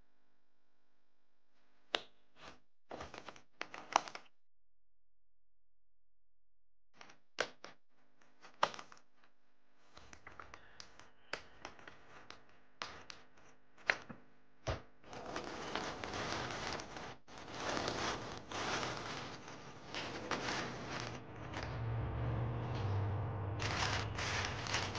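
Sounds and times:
plastic bag crinkling: 23.6 - 24.9.

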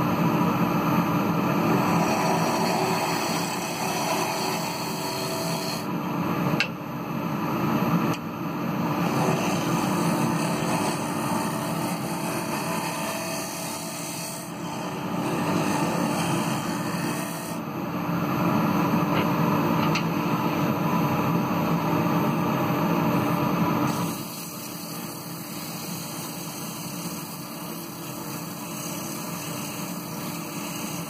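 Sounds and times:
lathe motor hum: 1.0 - 5.9, 8.8 - 18.9, 21.6 - 31.0
gouge scraping spinning wood bowl: 1.6 - 5.9, 9.0 - 17.6, 23.9 - 31.0.

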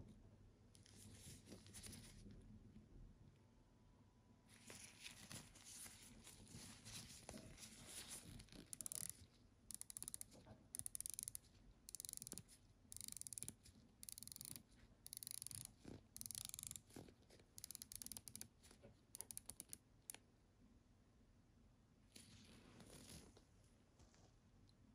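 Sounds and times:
gloved hands rubbing on watch: 4.6 - 17.0
fine rapid clicking: 8.0 - 18.6, 19.2 - 20.2.

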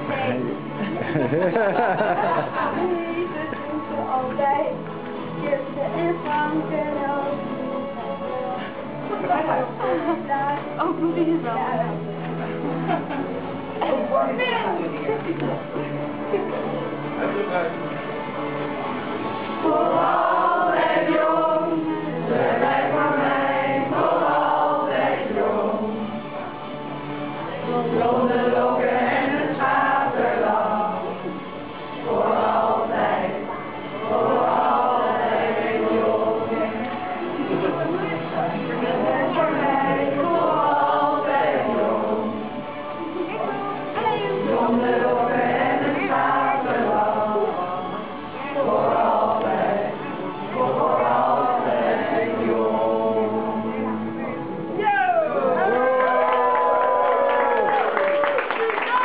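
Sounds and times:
group singing: 0.0 - 3.4, 18.6 - 54.8.

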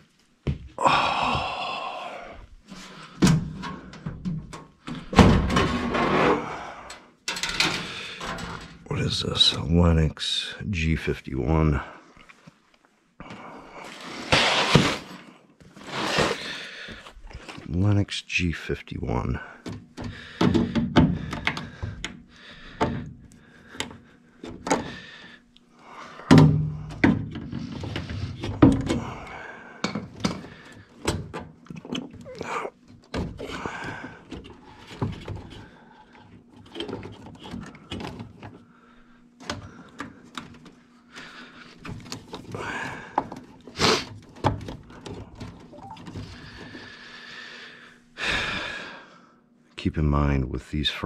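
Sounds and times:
tools clicking and rattling on metal: 6.9 - 8.9.

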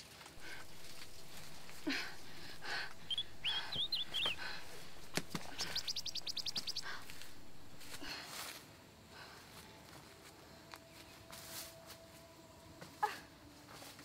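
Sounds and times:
rustling of leaves and brush: 0.0 - 14.0
birds chirping and trilling: 0.4 - 8.1.

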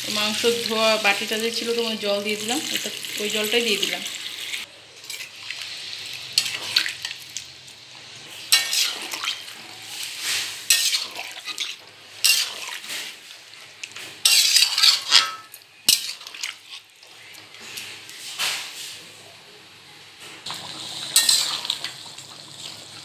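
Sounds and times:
metal spatula scraping a pan: 6.2 - 7.2, 8.2 - 13.4, 14.0 - 19.0, 21.1 - 21.8.

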